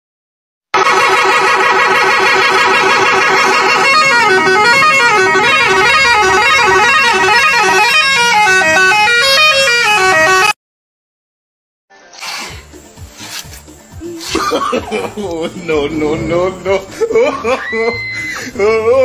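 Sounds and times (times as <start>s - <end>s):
musical vehicle horn playing a tune: 0.8s - 10.6s, 15.9s - 17.0s.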